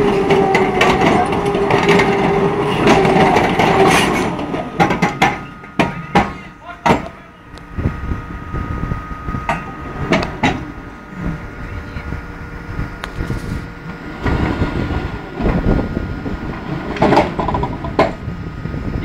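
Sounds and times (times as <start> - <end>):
low machinery rumble: 0.0 - 19.0
thin steady whine: 0.0 - 19.0
tracks clanking and grinding: 0.0 - 19.0
sharp metal knocks: 2.9 - 7.1.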